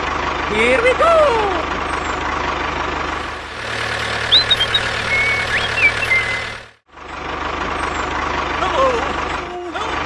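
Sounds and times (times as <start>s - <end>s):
tractor engine running: 0.0s - 10.0s
short high chirps: 4.1s - 6.6s.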